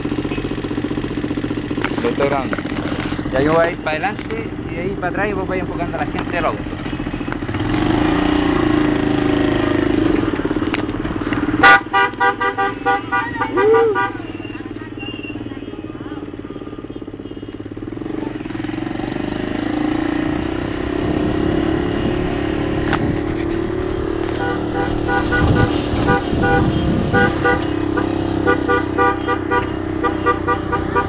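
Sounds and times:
motorcycle engine running: 0:00.0 - 0:31.0
vehicle horns honking: 0:11.5 - 0:18.1, 0:21.8 - 0:22.6, 0:24.2 - 0:31.0.

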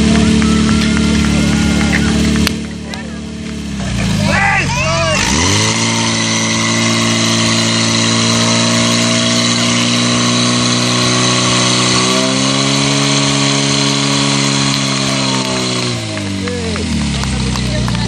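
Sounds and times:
pump engine running at high revs: 0:00.0 - 0:18.0.

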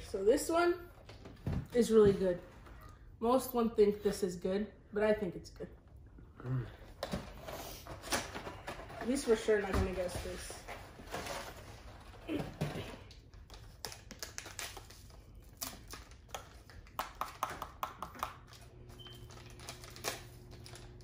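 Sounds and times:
plastic snack packet crackling: 0:19.2 - 0:21.0.

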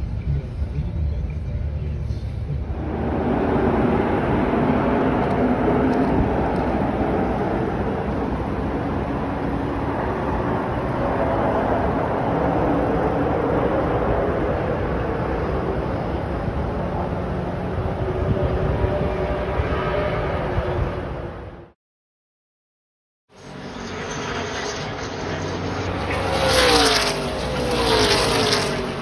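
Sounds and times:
distant engines droning: 0:00.0 - 0:21.8, 0:23.3 - 0:29.0.

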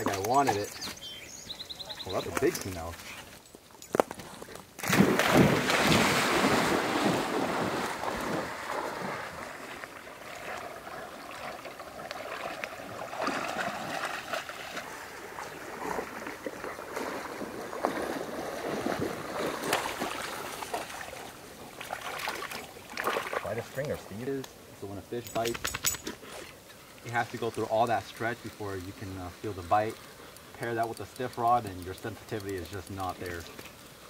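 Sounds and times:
dog wading and sloshing: 0:04.4 - 0:23.9
dog splashing into water: 0:04.8 - 0:23.5.

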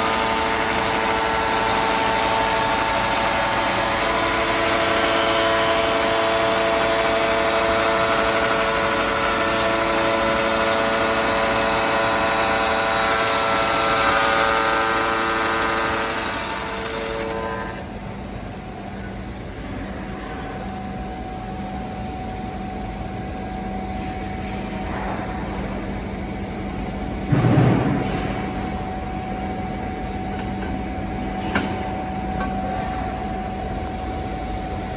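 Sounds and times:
bevelling machine milling steel: 0:00.0 - 0:17.9.

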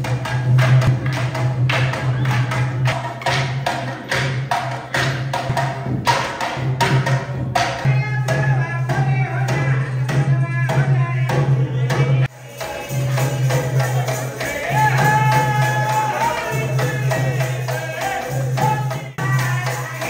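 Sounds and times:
barrel drum beating: 0:00.0 - 0:20.0
jingling percussion: 0:00.0 - 0:20.0
men singing: 0:07.9 - 0:20.0.

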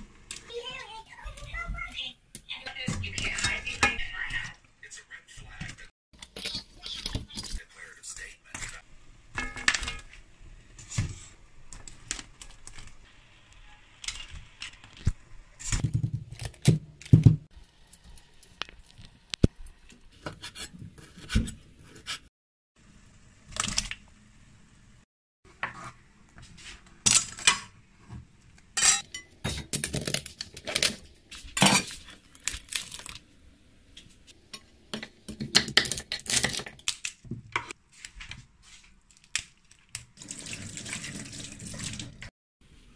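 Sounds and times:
clinks of pot and utensils: 0:28.8 - 0:29.8
crab shell cracking and tearing: 0:32.3 - 0:33.2.

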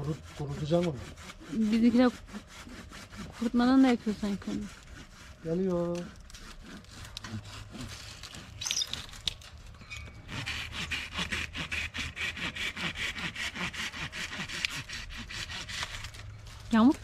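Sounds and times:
hand saw cutting branch: 0:00.0 - 0:17.0
branch rustling and clicking: 0:08.0 - 0:09.9.

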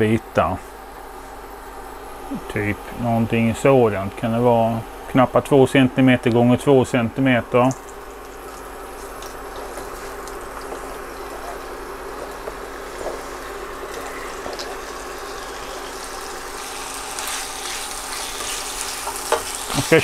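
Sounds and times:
chicken sizzling in a frying pan: 0:07.7 - 0:20.0.

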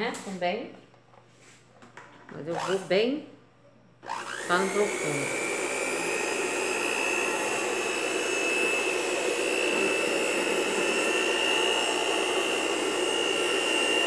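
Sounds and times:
electric hand mixer whining: 0:02.5 - 0:02.9, 0:04.0 - 0:14.0.

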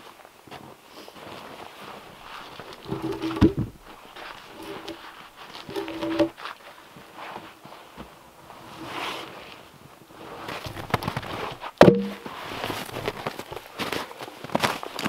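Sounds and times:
log thudding onto logs: 0:02.8 - 0:05.0, 0:05.6 - 0:06.3, 0:11.8 - 0:12.4
wooden knock: 0:02.9 - 0:03.8, 0:11.8 - 0:12.2.

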